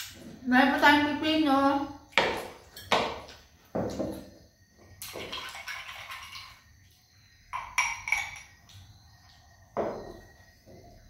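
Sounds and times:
dishes and utensils clattering: 0:07.6 - 0:08.6.

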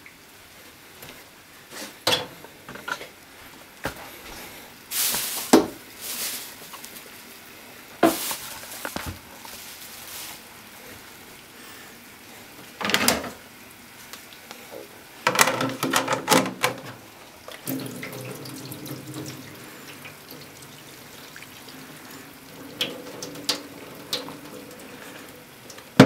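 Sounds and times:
plastic container knocks and rustles: 0:05.2 - 0:05.8, 0:08.0 - 0:09.2
plastic clacking in metal sink: 0:12.8 - 0:13.4, 0:15.2 - 0:17.0, 0:22.7 - 0:24.6.

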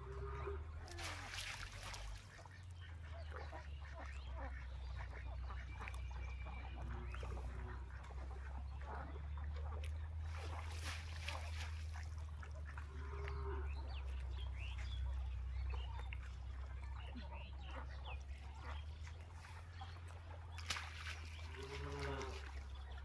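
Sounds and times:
water splashing from hand net: 0:00.9 - 0:02.4, 0:10.3 - 0:12.3, 0:20.5 - 0:22.7.

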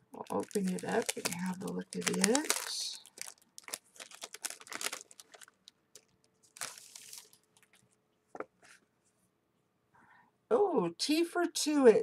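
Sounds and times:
cellophane sleeve crinkling: 0:00.2 - 0:08.0.

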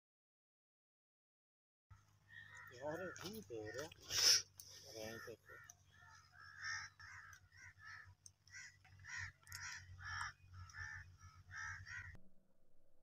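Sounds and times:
crows cawing: 0:01.9 - 0:12.2.

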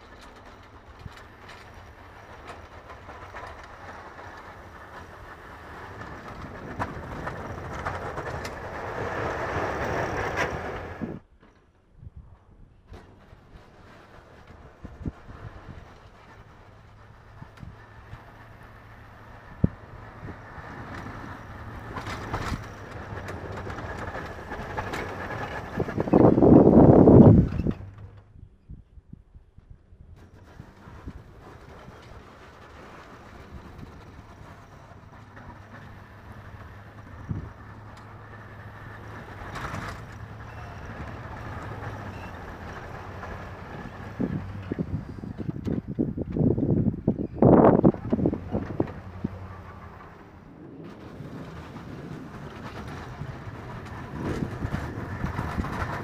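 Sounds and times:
plow blade pushing snow: 0:00.0 - 0:11.3, 0:12.8 - 0:28.3, 0:30.2 - 0:56.0
truck engine: 0:00.0 - 0:11.7, 0:12.7 - 0:28.4, 0:30.2 - 0:56.0
truck engine running: 0:30.2 - 0:56.0.

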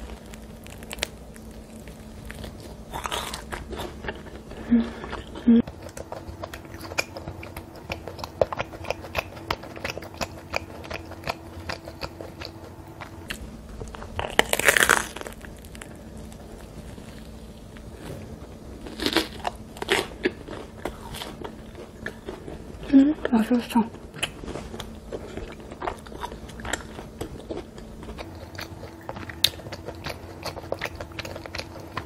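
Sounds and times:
crunchy bite into crust: 0:00.0 - 0:04.5, 0:05.2 - 0:22.4
chewing bread with crackles: 0:00.0 - 0:32.0.

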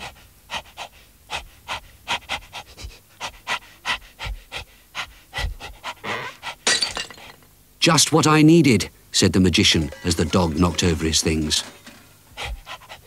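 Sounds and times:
cartoon dog panting: 0:00.0 - 0:06.7, 0:12.3 - 0:13.0.

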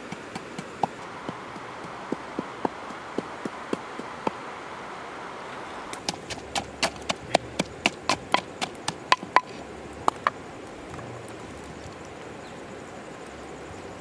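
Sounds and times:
pestle pounding in mortar: 0:00.0 - 0:04.4, 0:06.0 - 0:10.3.

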